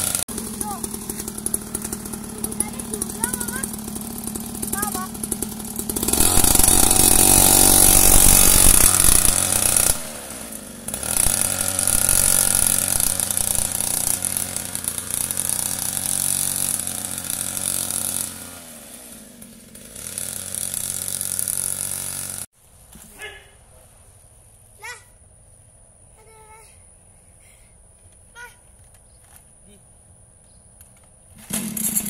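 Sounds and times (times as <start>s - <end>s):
small dirt bike engine running: 0.0s - 22.5s, 31.3s - 32.0s.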